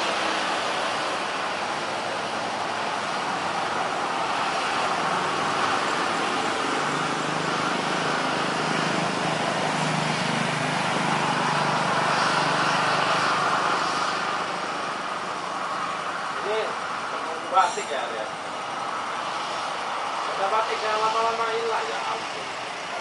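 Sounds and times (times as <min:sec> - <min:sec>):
jet engines rushing hum: 0:00.0 - 0:23.0.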